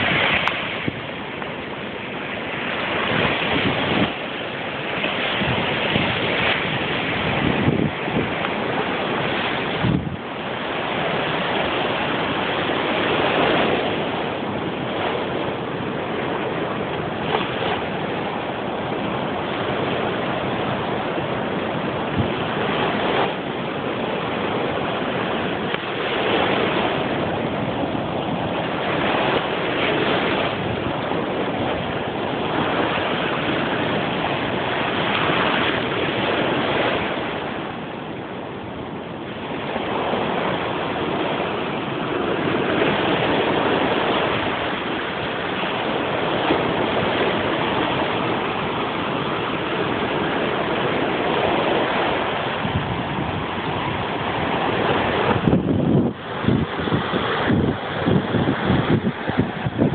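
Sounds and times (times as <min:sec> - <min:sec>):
sea surf breaking on rocks: 0:00.0 - 0:59.9.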